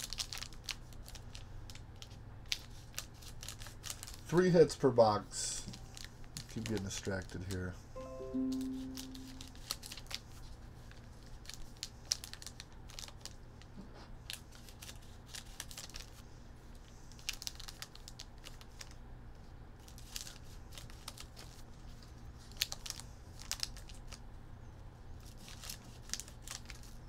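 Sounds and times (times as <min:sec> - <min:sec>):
plastic wrappers crinkling: 0:00.0 - 0:04.4, 0:05.7 - 0:07.7, 0:09.0 - 0:19.0, 0:19.8 - 0:24.2, 0:25.2 - 0:27.0.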